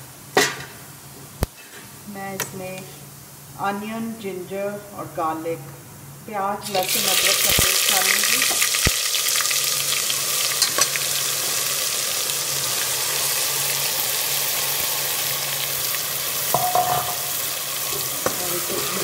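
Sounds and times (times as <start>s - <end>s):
paste sizzling in hot oil: 6.6s - 19.0s.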